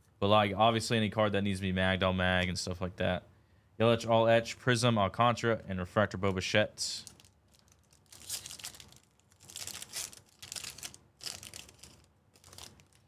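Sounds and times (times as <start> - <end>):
foil wrapper crinkling and tearing: 7.0 - 13.0.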